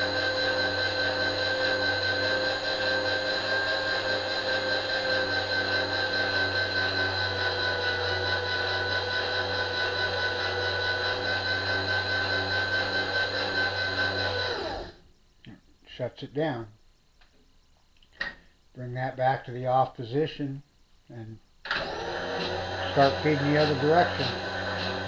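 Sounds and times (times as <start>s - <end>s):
power feed motor hum and whine: 0.0s - 15.0s, 21.7s - 25.0s.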